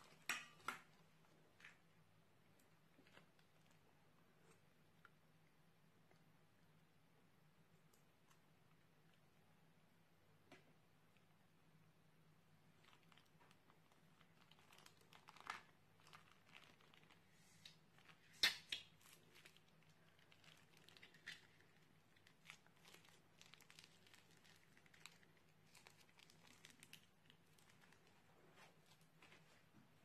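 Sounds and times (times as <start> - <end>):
plastic piping bag crinkling: 12.6 - 29.7
slime crackling: 12.7 - 29.2.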